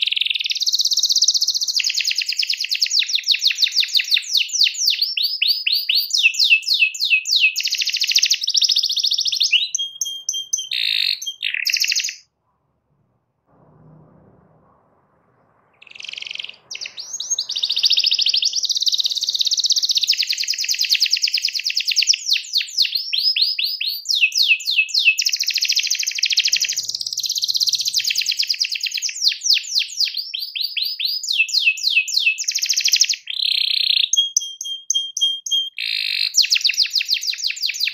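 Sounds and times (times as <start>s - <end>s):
canary singing trills: 0.0s - 12.3s, 15.8s - 37.9s.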